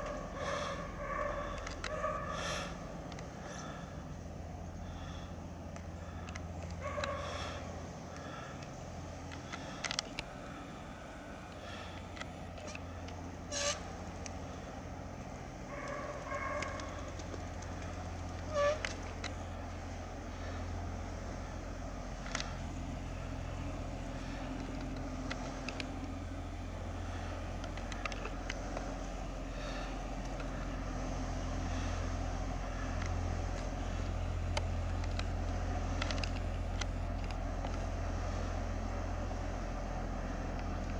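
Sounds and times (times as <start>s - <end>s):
diesel engine humming: 0.0s - 40.9s.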